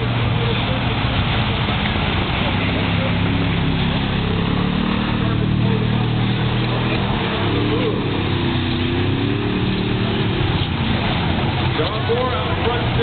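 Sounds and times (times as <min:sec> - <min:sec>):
race car engines: 0:00.0 - 0:13.0.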